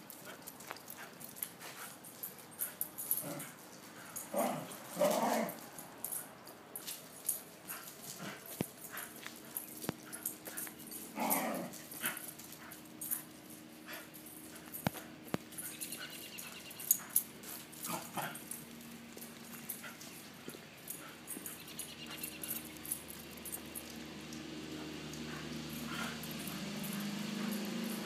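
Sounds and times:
dogs vocalizing: 0:07.8 - 0:24.0, 0:24.6 - 0:28.0.

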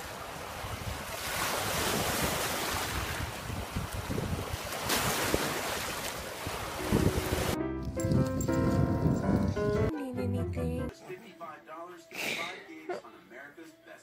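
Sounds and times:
small waves washing onto beach: 0:00.0 - 0:07.6
wind on microphone: 0:00.4 - 0:09.9.

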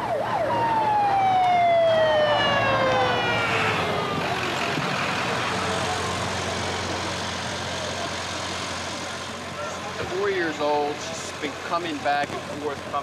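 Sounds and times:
ambulance siren winding down: 0:00.0 - 0:07.0
low hum of vehicle engine: 0:00.0 - 0:13.0.

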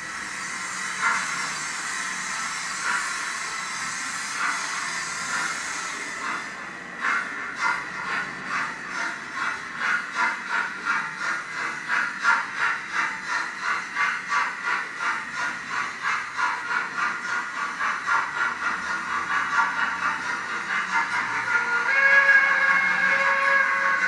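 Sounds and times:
model steam locomotive chuffing: 0:00.0 - 0:24.0.

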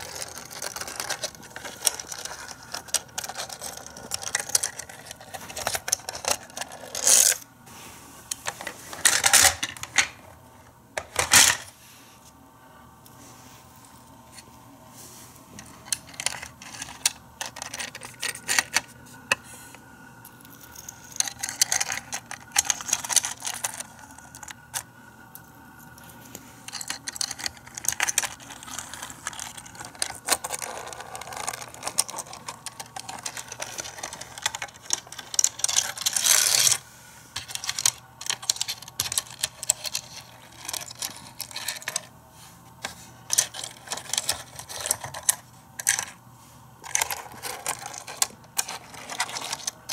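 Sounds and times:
toy cars clicking and rattling: 0:00.0 - 0:07.4, 0:15.6 - 0:19.4, 0:20.5 - 0:36.8, 0:37.4 - 0:42.1, 0:42.8 - 0:46.2, 0:46.8 - 0:49.9.

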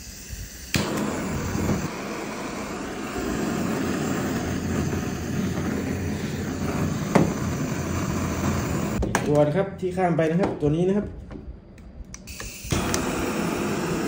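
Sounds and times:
butane torch flame hissing: 0:00.0 - 0:09.0, 0:12.2 - 0:14.0.

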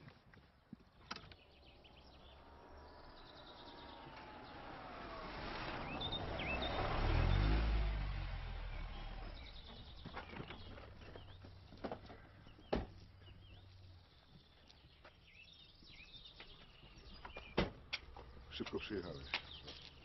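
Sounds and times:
birds chirping: 0:00.0 - 0:20.0
car engine idling: 0:01.4 - 0:14.4.

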